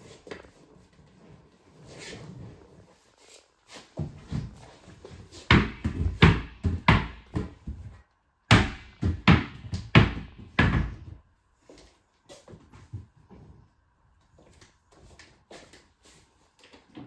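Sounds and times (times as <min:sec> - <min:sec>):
ball bouncing on hard floor: 0:05.4 - 0:11.2.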